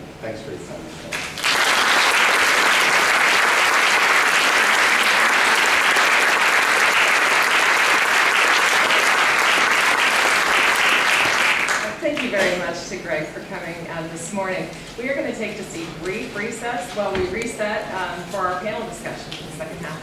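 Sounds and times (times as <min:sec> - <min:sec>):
audience applauding: 0:01.1 - 0:12.5.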